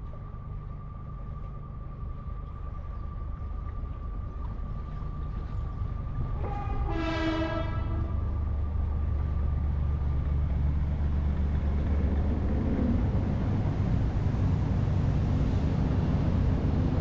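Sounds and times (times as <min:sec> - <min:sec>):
engine rumble: 0:00.0 - 0:17.0
horn blast: 0:06.4 - 0:08.1.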